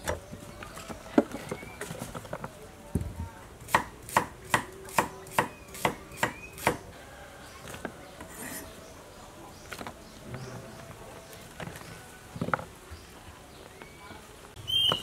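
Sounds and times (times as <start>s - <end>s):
knife chopping on wooden board: 3.7s - 6.8s.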